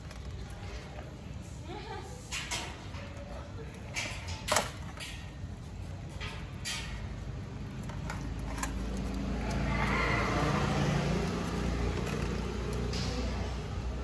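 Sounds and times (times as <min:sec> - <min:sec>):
vehicle engine passing: 0:07.2 - 0:14.0.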